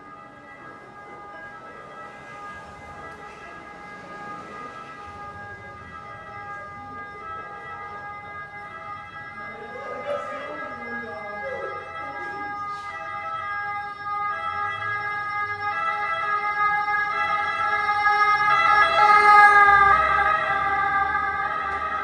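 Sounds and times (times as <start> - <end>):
two-tone siren: 0.0 - 22.0.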